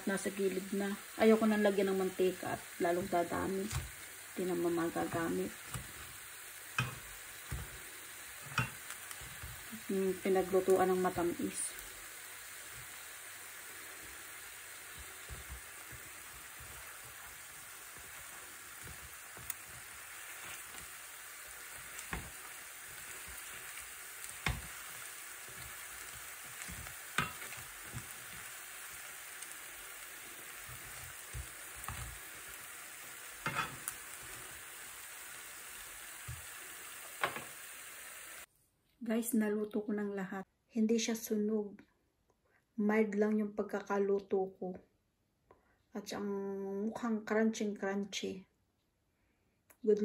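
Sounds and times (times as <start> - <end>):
food sizzling in oil: 0.0 - 38.5
tongs clicking against pan: 6.7 - 7.6, 8.5 - 9.2, 26.0 - 28.1.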